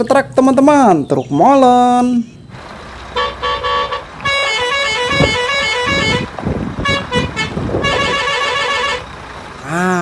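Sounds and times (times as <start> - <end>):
low rumbling: 2.2 - 10.0
musical vehicle horn: 3.1 - 9.2.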